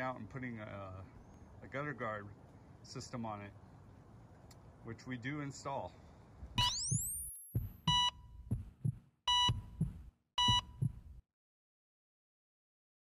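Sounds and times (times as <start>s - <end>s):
heart monitor beeps: 6.6s - 11.1s
heartbeat thumps: 6.6s - 11.2s.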